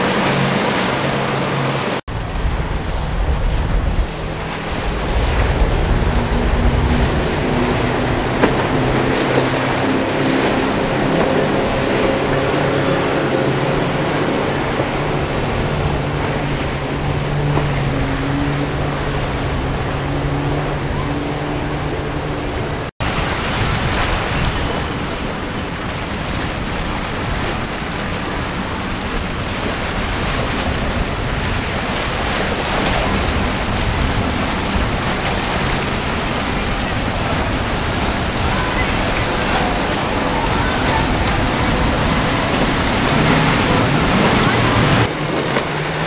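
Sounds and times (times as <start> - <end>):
breaking surf: 0.0 - 46.0
outboard motors humming: 0.0 - 46.0
wind on microphone: 0.0 - 46.0
low rumble: 2.1 - 22.9.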